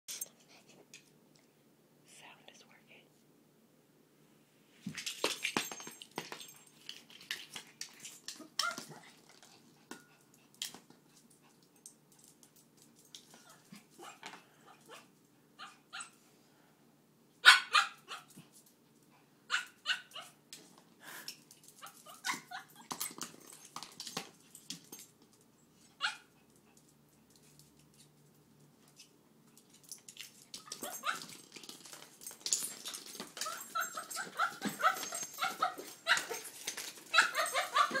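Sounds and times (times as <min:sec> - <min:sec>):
small dog barking and growling: 0:13.4 - 0:16.2, 0:17.4 - 0:18.4, 0:19.5 - 0:20.4, 0:26.0 - 0:26.4, 0:30.7 - 0:31.4, 0:33.4 - 0:38.0.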